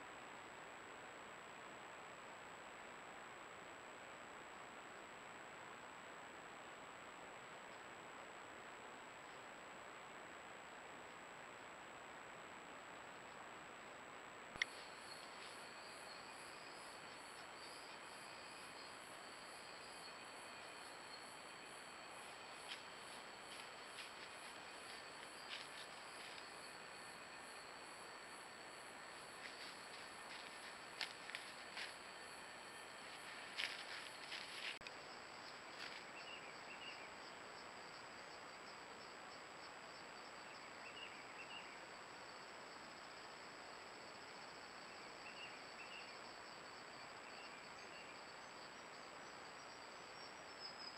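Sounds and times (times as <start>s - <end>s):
pulsing insect chirring: 14.6s - 35.6s
insect high-pitched trill: 14.6s - 48.9s.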